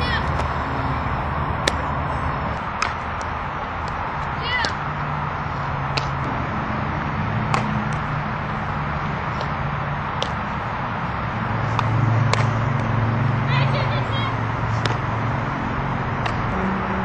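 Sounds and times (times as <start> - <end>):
bat hitting softball: 1.6 - 4.9, 5.9 - 6.4, 7.4 - 8.1, 9.3 - 10.5, 11.6 - 12.9, 14.7 - 15.1, 16.2 - 16.5
ball caught in glove: 7.5 - 8.0.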